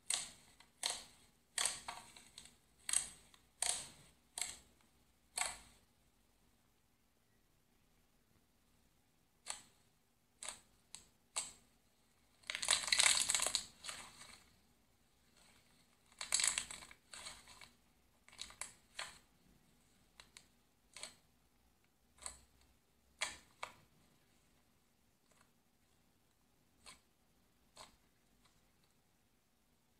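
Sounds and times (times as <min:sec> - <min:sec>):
slime squishing and crackling: 0:10.4 - 0:21.3.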